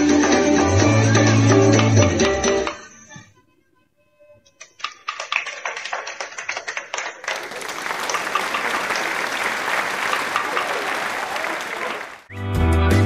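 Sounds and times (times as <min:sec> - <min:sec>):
audience applause: 0:05.0 - 0:12.3.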